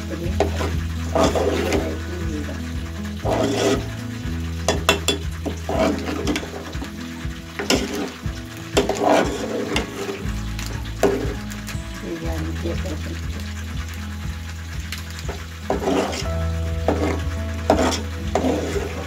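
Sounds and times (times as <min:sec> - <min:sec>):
background music: 0:00.0 - 0:19.0
metal ladle scraping a pot: 0:00.1 - 0:19.0.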